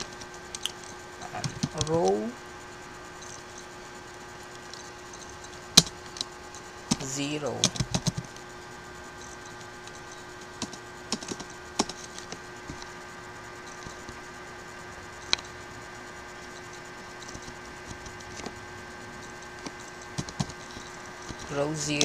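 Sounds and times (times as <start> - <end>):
computer keyboard typing: 0.0 - 2.3, 4.7 - 8.4, 9.2 - 12.9, 16.4 - 22.0
steady low hum: 0.0 - 22.0.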